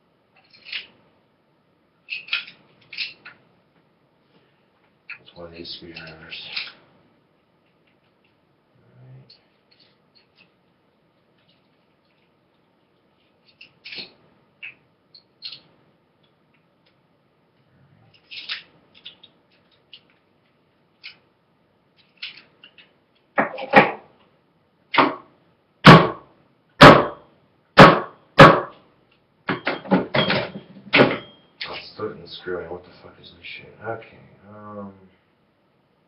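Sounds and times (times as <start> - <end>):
loud sharp knocks: 25.0 - 27.2, 27.8 - 28.8.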